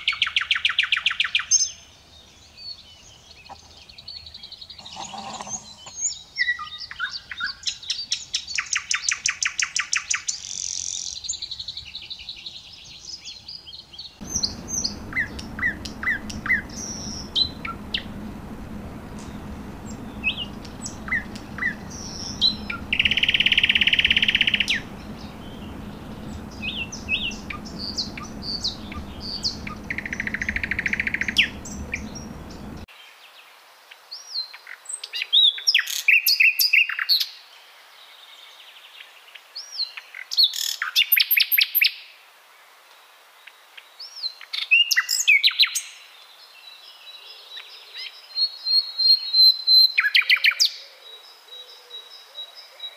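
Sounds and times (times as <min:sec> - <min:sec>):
nightingale singing: 0:14.2 - 0:32.9.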